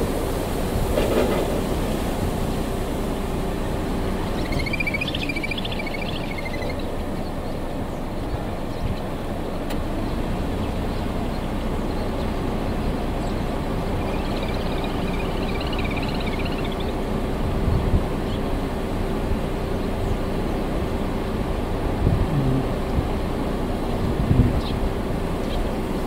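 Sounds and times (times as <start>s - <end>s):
low outdoor rumble: 0.0s - 26.0s
bird trilling: 4.2s - 9.0s, 12.8s - 17.0s.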